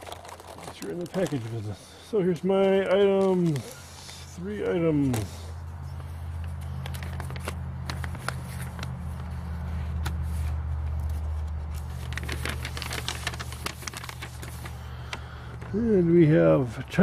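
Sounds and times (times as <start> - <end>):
paper and packaging crinkling: 0.0 - 5.5, 6.3 - 17.0
low mechanical hum: 0.0 - 17.0.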